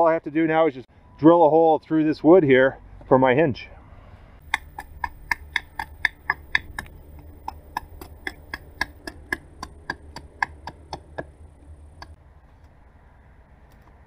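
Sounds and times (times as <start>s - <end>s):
bow drill clicking: 4.5s - 11.3s.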